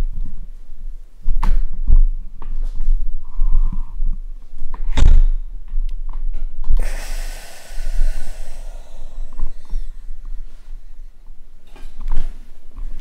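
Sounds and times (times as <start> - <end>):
breathy hiss: 6.8 - 11.4.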